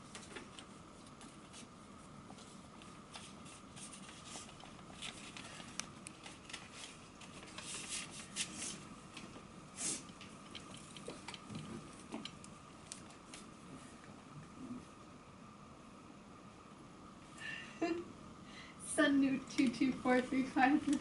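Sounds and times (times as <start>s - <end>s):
paper rustling: 0.0s - 9.3s
faint steady hum: 0.0s - 21.0s.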